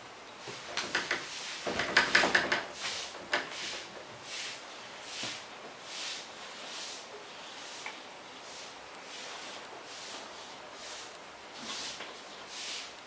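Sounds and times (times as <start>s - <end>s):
duster swishing on blackboard: 0.4s - 13.0s
chalk taps and scrapes: 0.5s - 5.4s.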